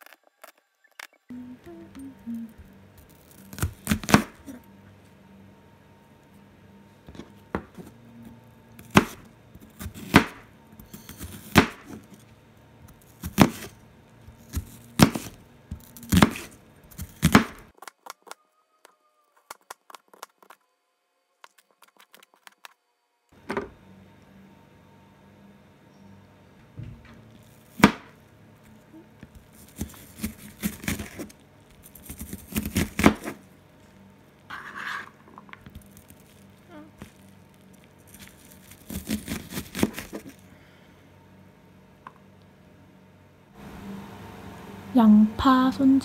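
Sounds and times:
knife chopping on cutting board: 8.8s - 9.2s, 9.8s - 10.4s, 11.1s - 12.0s, 14.5s - 17.6s, 32.0s - 33.4s.

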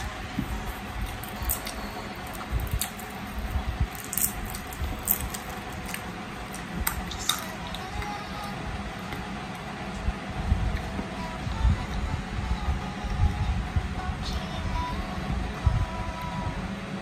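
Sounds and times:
cashews crunching: 0.0s - 8.0s
steady low hum: 0.0s - 17.0s.

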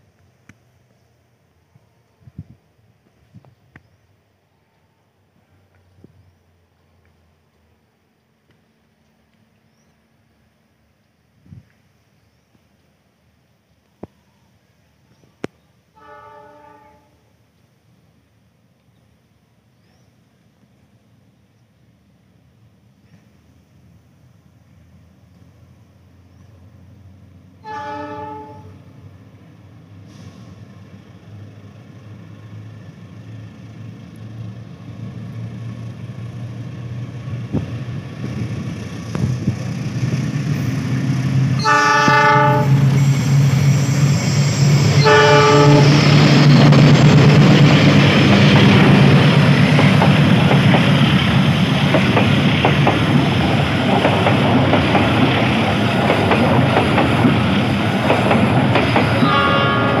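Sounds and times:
train passing: 0.0s - 60.0s
train horn: 15.9s - 17.3s, 27.6s - 28.9s, 41.6s - 44.0s, 44.6s - 46.2s, 59.2s - 60.0s.

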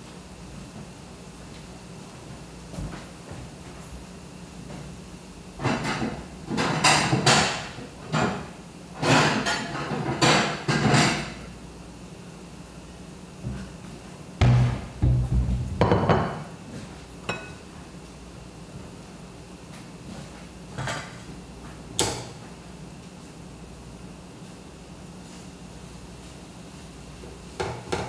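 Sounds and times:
steady low hiss: 14.4s - 16.0s
cookware knocks and clunks: 14.4s - 16.4s.

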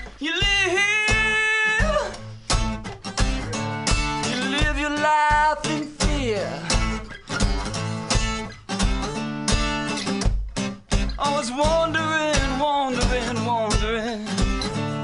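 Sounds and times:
person singing wordlessly: 0.0s - 2.3s, 3.3s - 7.0s, 11.1s - 15.0s
acoustic guitar strumming: 0.0s - 15.0s.

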